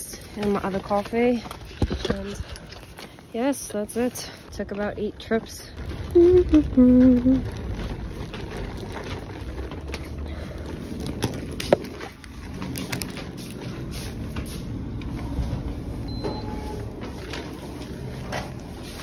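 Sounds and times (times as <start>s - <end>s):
rumble of walking and handling: 0.0s - 19.0s
faint high beep: 16.1s - 16.8s.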